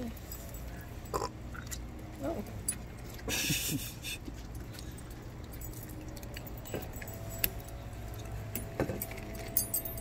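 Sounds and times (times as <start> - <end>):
low steady hum: 0.0 - 10.0
dog tags jingling: 4.8 - 10.0.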